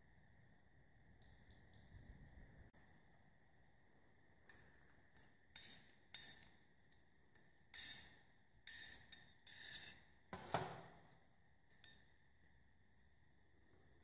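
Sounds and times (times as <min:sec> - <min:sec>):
metal spoon scraping ceramic bowl: 0:07.7 - 0:10.6.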